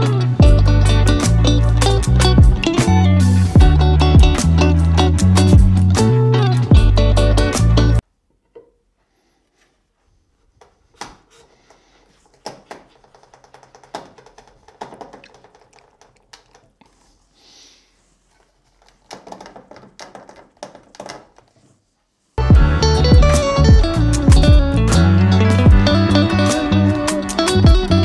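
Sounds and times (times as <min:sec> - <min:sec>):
rubbing hiss: 0:16.8 - 0:18.8
wooden taps and knocks: 0:19.1 - 0:21.5.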